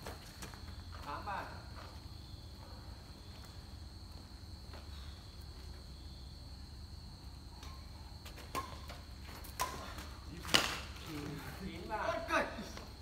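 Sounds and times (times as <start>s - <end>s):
racket hitting shuttlecock: 7.6s - 11.0s.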